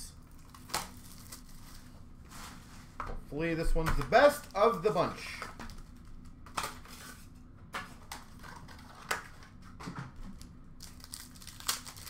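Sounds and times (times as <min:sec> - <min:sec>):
cards handled with clicks and rustles: 0:03.8 - 0:12.0.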